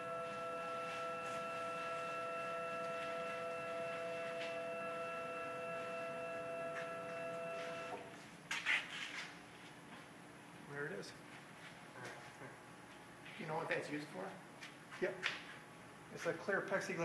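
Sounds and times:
router machine electric whine: 0:00.0 - 0:08.1.

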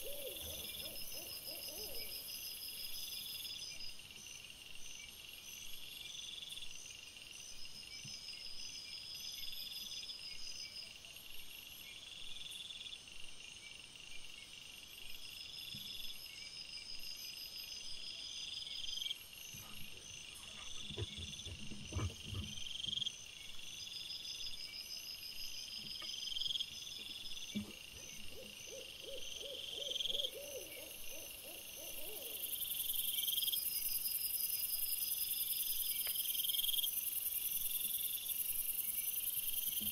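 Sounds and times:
night insects chirping: 0:00.0 - 0:39.9
wild boar grunting: 0:19.6 - 0:23.0.

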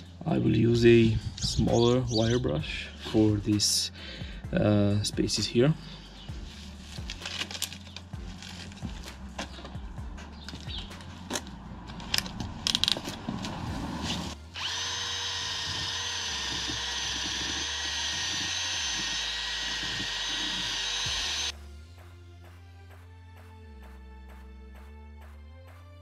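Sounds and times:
drill with wire brush whining: 0:14.0 - 0:21.5.

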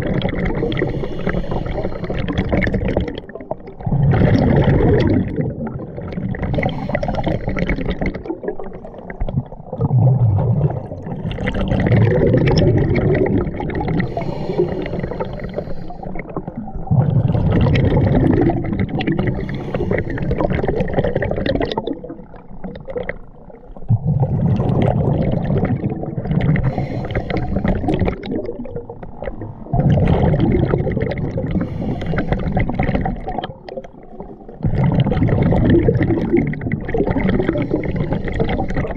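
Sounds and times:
diver exhaling bubbles underwater: 0:00.0 - 0:38.9.

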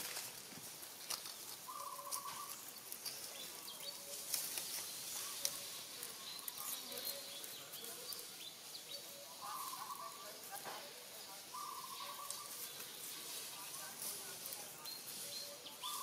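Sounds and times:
leaf litter crackling and rustling: 0:00.0 - 0:16.0
buzzy bird call: 0:01.6 - 0:02.6, 0:08.9 - 0:10.4, 0:11.5 - 0:14.0.

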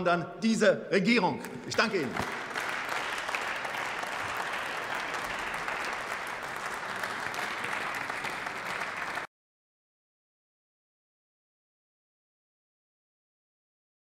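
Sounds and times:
crowd applauding: 0:01.4 - 0:09.3.

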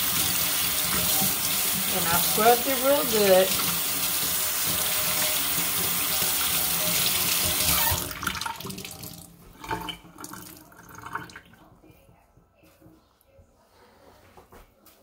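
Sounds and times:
faucet running into steel sink: 0:00.0 - 0:11.6.

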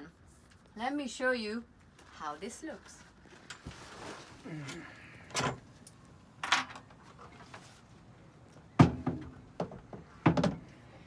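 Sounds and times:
wooden ladder knocks and thumps: 0:08.8 - 0:10.7.

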